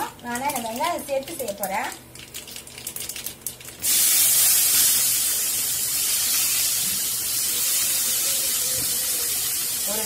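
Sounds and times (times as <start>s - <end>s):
onion sizzling in hot oil: 0.0s - 10.0s
mustard seeds crackling: 0.2s - 6.8s.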